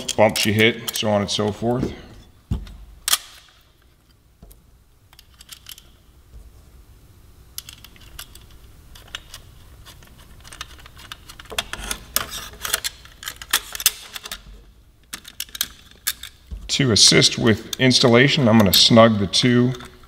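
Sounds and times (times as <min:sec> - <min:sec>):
metal bolts and nuts clinking: 0:00.0 - 0:01.7, 0:05.1 - 0:06.0, 0:07.6 - 0:20.0.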